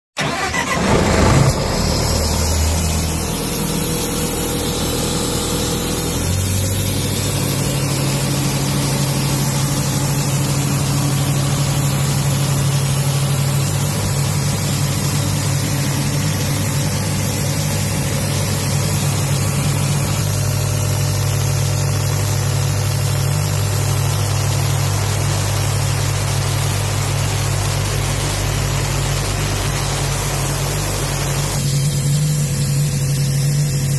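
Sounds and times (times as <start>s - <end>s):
diesel engine idling: 0.2s - 20.6s.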